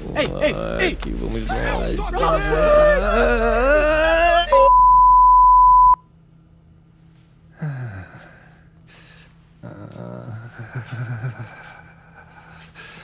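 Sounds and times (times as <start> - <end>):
person crying out: 0.2 - 4.7
steady beep tone: 4.5 - 6.0.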